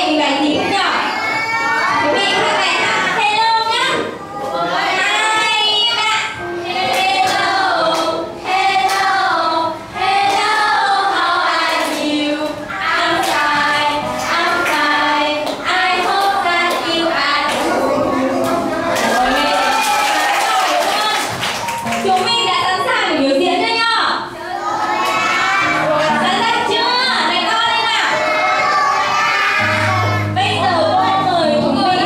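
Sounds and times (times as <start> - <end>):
children singing over music: 4.1 - 20.4, 24.3 - 32.0.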